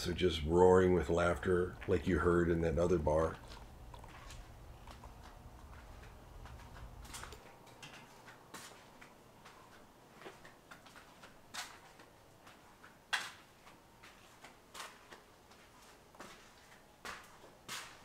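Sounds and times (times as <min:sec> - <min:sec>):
low hum: 0:00.0 - 0:07.8
night street ambience: 0:00.0 - 0:18.0.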